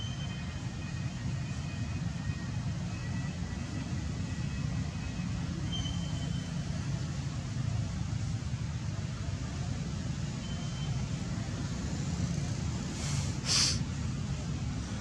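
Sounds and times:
low outdoor rumble: 11.0s - 15.0s.

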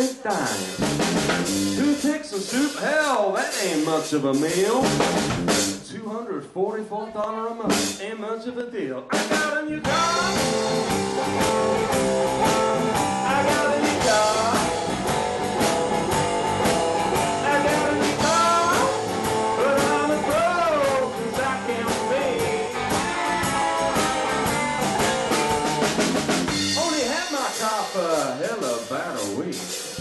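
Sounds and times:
drum kit beat: 0.0s - 6.0s, 7.6s - 8.2s, 9.1s - 30.0s
bass: 0.0s - 30.0s
electric guitar with bent notes: 9.8s - 28.4s.

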